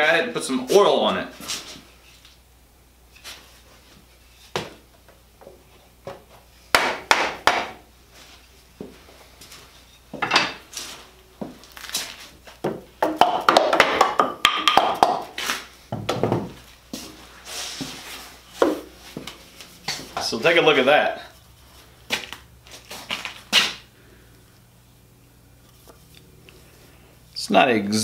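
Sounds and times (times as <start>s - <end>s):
wooden knocks and tool clatter: 8.8s - 11.0s, 15.9s - 16.7s.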